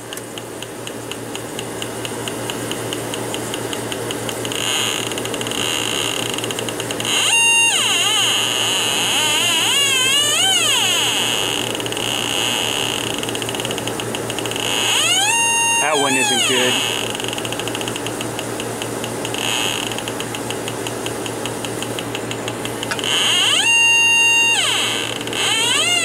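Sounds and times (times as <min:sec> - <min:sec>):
leak detector clicking rapidly: 0:00.1 - 0:07.0, 0:13.1 - 0:24.5
leak detector shrieking: 0:04.3 - 0:18.2, 0:19.2 - 0:20.3, 0:22.7 - 0:26.0.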